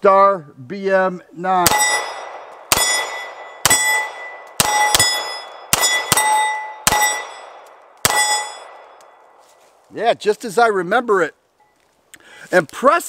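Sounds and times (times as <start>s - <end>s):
pistol shots: 1.6s - 9.0s
steel plate target ringing: 1.7s - 9.0s.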